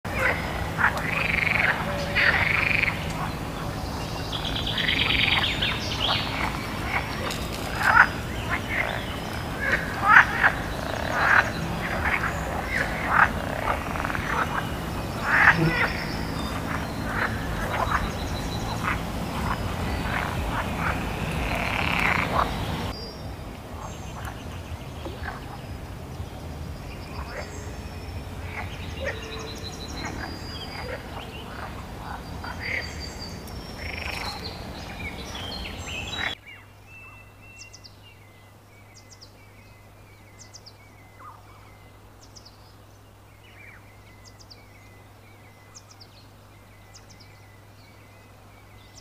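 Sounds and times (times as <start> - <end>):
frog-like croaking calls: 0.1 - 23.0, 33.8 - 34.5
steady low drone: 0.1 - 36.4.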